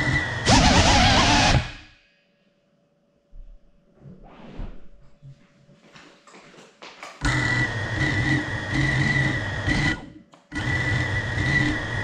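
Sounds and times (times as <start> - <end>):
drone motors whining: 0.0 - 1.9, 7.3 - 12.0.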